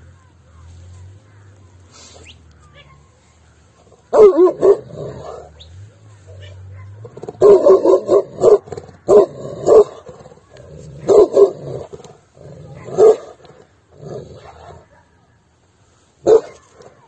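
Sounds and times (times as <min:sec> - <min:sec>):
dog barking: 0:04.1 - 0:11.9, 0:12.6 - 0:13.5, 0:14.3 - 0:15.4, 0:16.2 - 0:17.0.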